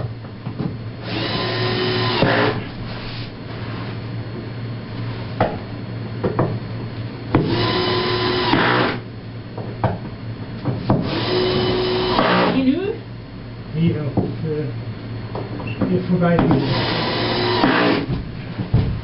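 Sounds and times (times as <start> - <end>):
steady low hum: 0.0 - 19.0
small motor whining: 1.0 - 2.6, 7.4 - 9.0, 11.0 - 12.6, 16.6 - 18.1.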